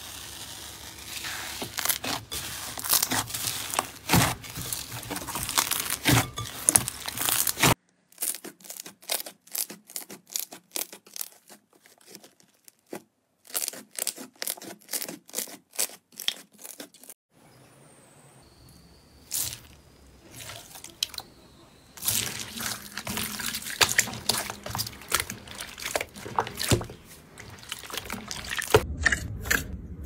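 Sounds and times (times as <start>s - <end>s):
slime crackling and popping: 0.0s - 12.9s, 22.0s - 28.9s.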